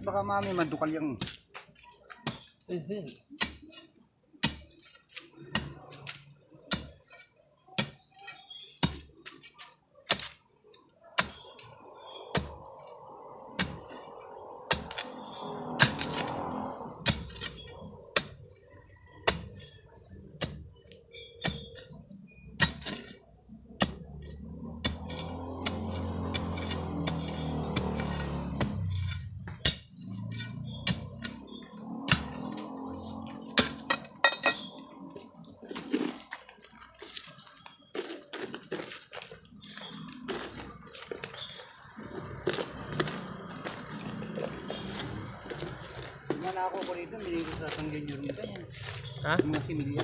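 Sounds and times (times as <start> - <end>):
metal tool digging soil and stones: 0.0 - 50.0.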